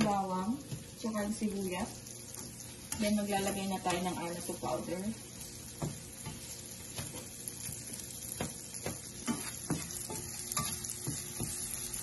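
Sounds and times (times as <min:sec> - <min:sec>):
onion sizzling in a frying pan: 0:00.0 - 0:12.0
spatula scraping and tapping pan: 0:02.3 - 0:04.8, 0:05.4 - 0:12.0.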